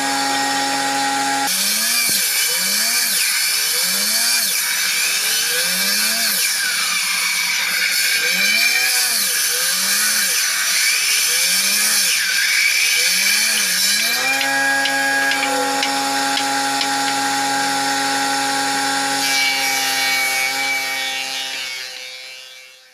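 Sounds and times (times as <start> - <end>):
planer motor tone: 0.0 - 1.5, 13.2 - 22.6
planer cutting wood: 0.0 - 22.9.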